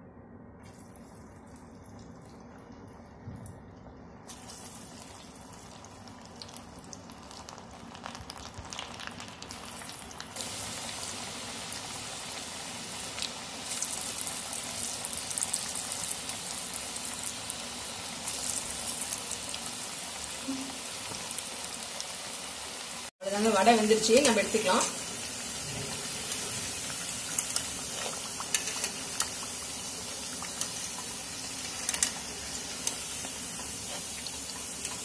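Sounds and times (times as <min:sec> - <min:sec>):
batter deep-frying in hot oil: 0:04.2 - 0:35.0.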